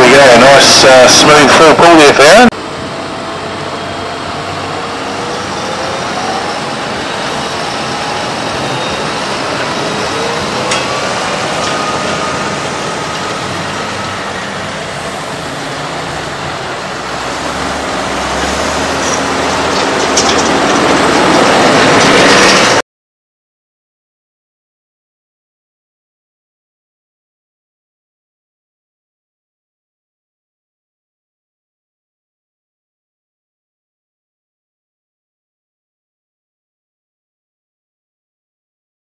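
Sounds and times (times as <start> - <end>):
tractor diesel engine passing: 0.0 - 22.8.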